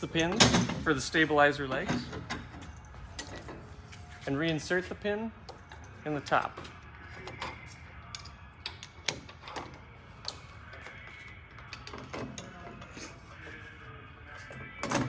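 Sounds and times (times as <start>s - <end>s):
metal hardware clicking and knocking: 0.0s - 1.0s, 1.7s - 3.7s.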